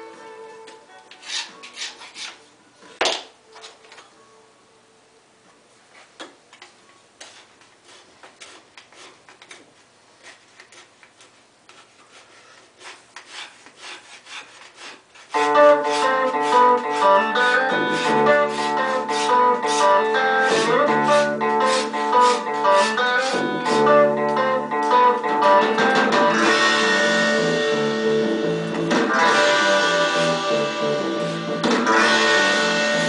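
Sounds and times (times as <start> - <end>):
guitar music: 0.0 - 1.2, 15.4 - 33.0
hand tool rubbing wood: 1.1 - 2.4, 7.2 - 26.0.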